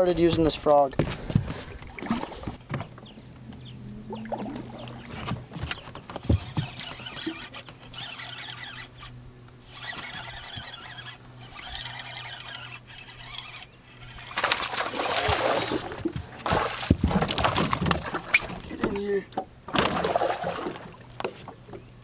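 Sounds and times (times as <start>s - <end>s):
steady low hum: 1.0s - 17.3s
fishing reel cranking: 6.4s - 14.4s
fish splashing at surface: 14.4s - 18.3s.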